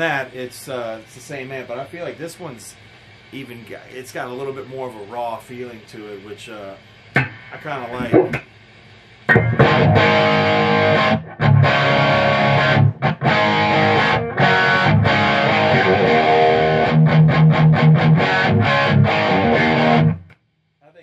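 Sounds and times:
distorted electric guitar chords: 0:07.2 - 0:08.5, 0:09.3 - 0:20.4
muted guitar chugs: 0:07.2 - 0:08.5, 0:09.3 - 0:20.2.

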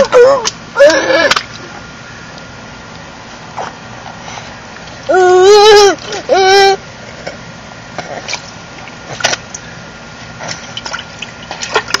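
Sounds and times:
baby squealing: 0:05.1 - 0:06.8
water splashing and tapping: 0:08.2 - 0:09.6, 0:10.4 - 0:12.0.

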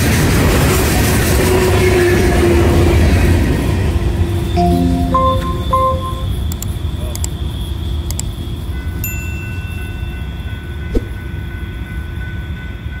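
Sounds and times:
bell-like chime ringing: 0:04.6 - 0:06.5.

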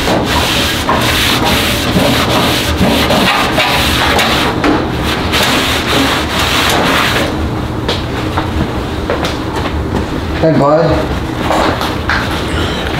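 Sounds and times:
paper towel scrubbing steel griddle: 0:00.0 - 0:07.3.

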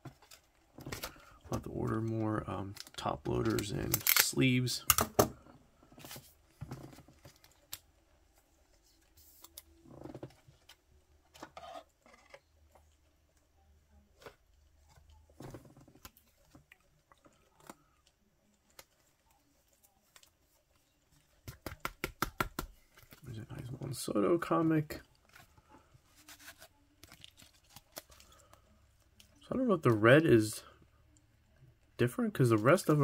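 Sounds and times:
trading cards clicking and rustling: 0:00.0 - 0:05.3, 0:21.2 - 0:23.8, 0:25.3 - 0:28.6.

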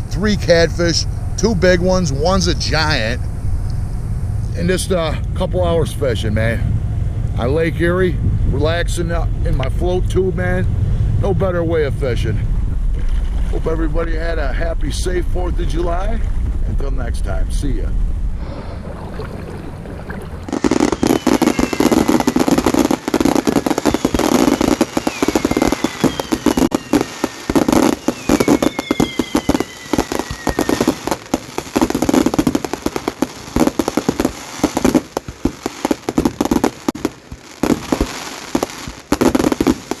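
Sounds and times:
fireworks crackling: 0:00.0 - 0:05.0, 0:18.4 - 0:40.0
firework whistles sliding down: 0:20.4 - 0:37.0.

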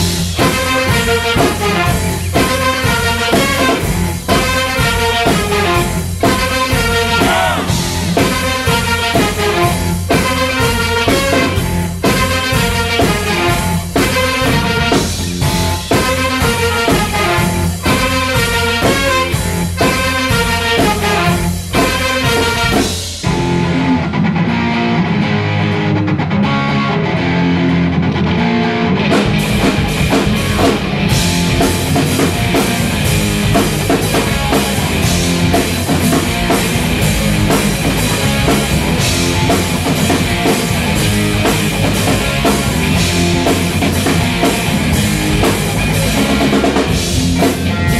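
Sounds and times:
bass and drums: 0:00.0 - 0:47.9
electric guitar riff: 0:00.0 - 0:47.9
full band rock groove: 0:00.0 - 0:47.9
trumpets playing rhythmic hits: 0:00.4 - 0:23.1.

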